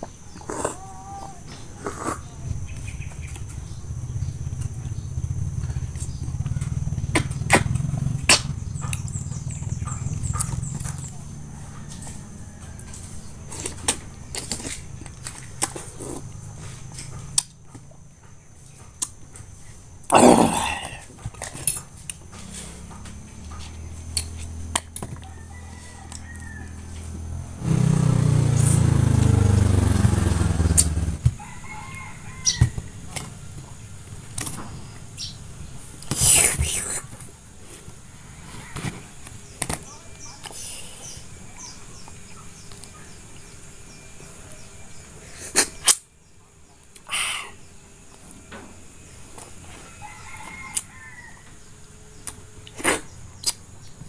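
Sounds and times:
loud low rumble: 2.3s - 11.3s, 27.0s - 31.3s
low hum: 2.3s - 11.6s, 26.6s - 31.4s
fruit and knife clicking: 52.2s - 53.6s.

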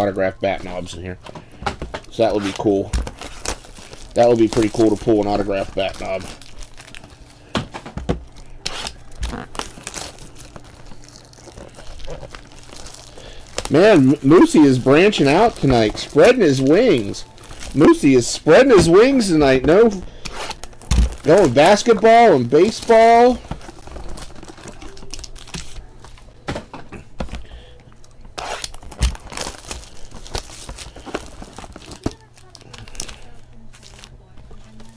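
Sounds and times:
plastic wrap crinkling and tearing: 0.4s - 26.3s, 27.2s - 34.9s
cards being handled: 0.6s - 26.3s.

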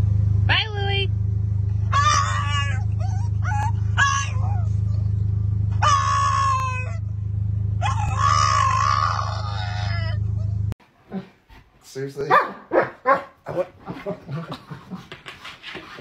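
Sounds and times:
steady low hum: 0.0s - 10.8s
dog whining and howling: 1.8s - 7.1s, 7.8s - 10.6s.

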